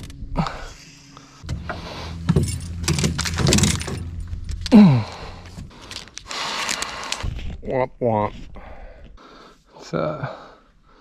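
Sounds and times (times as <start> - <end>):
low vocal sound: 4.7 - 5.6.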